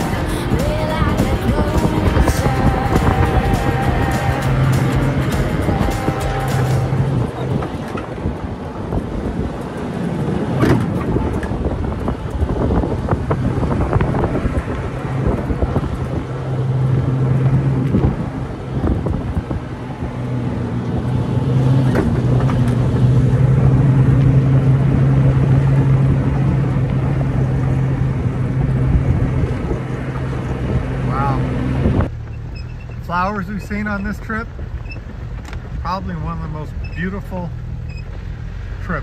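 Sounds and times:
knocks and rattles over bumps: 0.0 - 23.4, 32.0 - 38.8
wind buffeting microphone: 0.0 - 37.0
car engine driving: 0.0 - 39.0.

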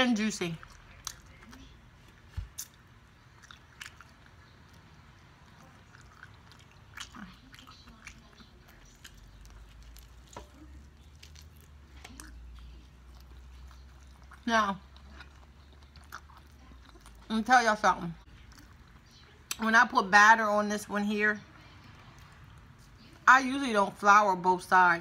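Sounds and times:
quiet chewing: 0.4 - 17.4, 18.0 - 19.6.

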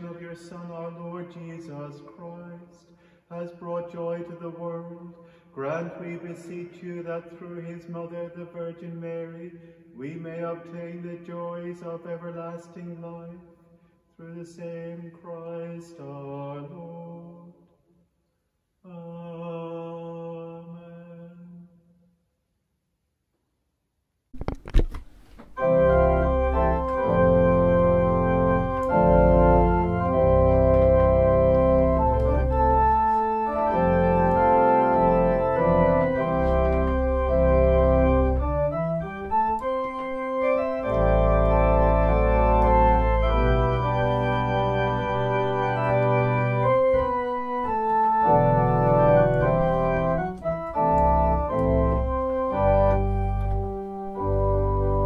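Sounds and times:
organ chords: 24.4 - 55.0.

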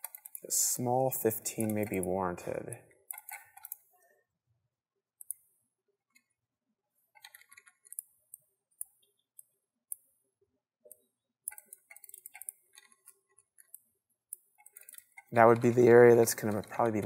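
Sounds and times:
mouse and keyboard clicking: 0.0 - 0.5, 1.5 - 2.2, 3.1 - 3.8, 5.2 - 5.4, 7.2 - 10.1, 10.9 - 17.0.

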